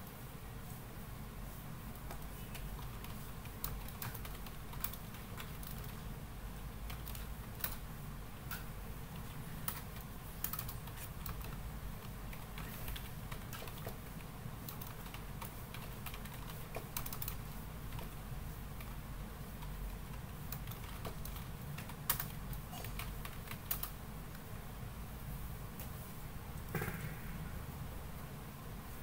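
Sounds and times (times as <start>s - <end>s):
steady low hum: 0.0s - 29.0s
typing on computer keyboard: 2.1s - 6.0s, 6.8s - 7.8s, 9.2s - 18.2s, 19.6s - 24.0s.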